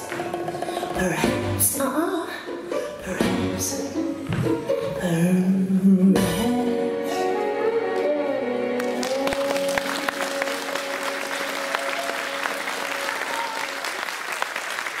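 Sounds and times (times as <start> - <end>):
audience applause: 8.8 - 15.0.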